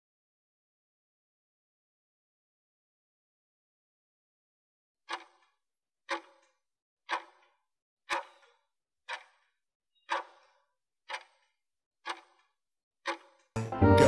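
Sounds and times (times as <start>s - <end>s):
clock ticking: 5.1s - 5.5s, 6.1s - 7.5s, 8.1s - 9.5s, 10.1s - 13.6s.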